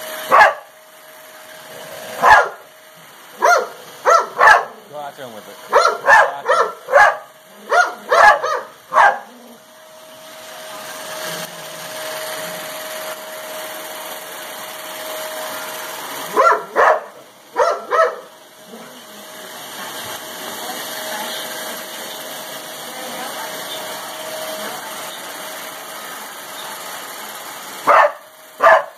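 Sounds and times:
vacuum cleaner hum and whine: 0.0 - 28.9
dog barking: 0.3 - 0.7, 2.2 - 2.6, 3.4 - 4.8, 5.7 - 9.4, 16.3 - 18.9, 27.8 - 28.9.

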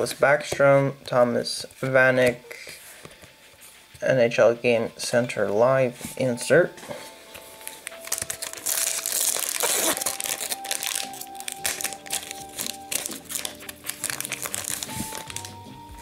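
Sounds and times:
background music: 0.0 - 16.0
foil wrapper crinkling and tearing: 7.6 - 15.6.

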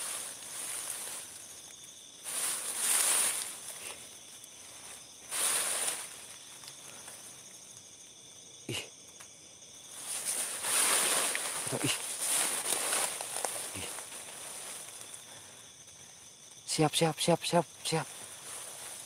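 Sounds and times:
rustling hiss: 0.0 - 17.1, 17.7 - 19.0
night insects chirring: 0.0 - 19.0.

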